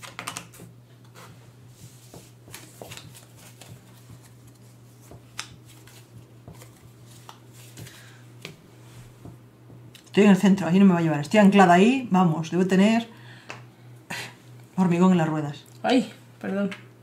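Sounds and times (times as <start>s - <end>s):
cards tapping on a table: 0.0s - 0.7s, 5.0s - 8.6s
low steady hum: 0.0s - 17.0s.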